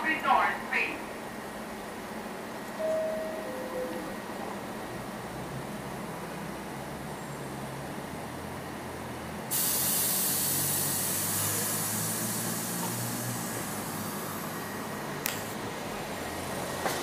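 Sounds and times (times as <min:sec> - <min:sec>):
subway train humming: 0:00.0 - 0:17.0
air brakes hissing: 0:09.5 - 0:14.9.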